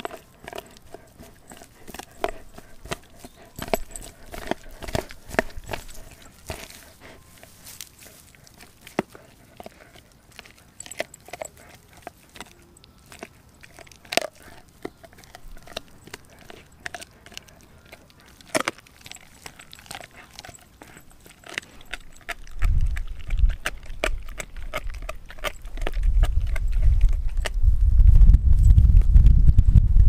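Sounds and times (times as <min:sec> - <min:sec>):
dog crunching bone: 0:00.0 - 0:27.6
low rumble: 0:26.0 - 0:30.0.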